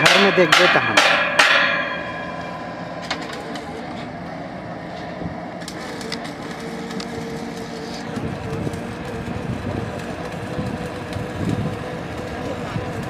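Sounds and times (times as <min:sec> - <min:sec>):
ringing metal hammer blow: 0:00.0 - 0:03.6
drilling rig engine running: 0:00.0 - 0:13.0.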